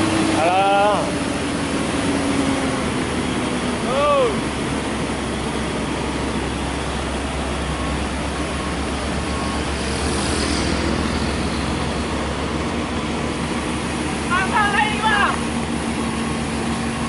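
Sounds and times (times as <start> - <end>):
diesel truck engine droning: 0.0 - 17.0
motorcycle passing: 9.8 - 12.6.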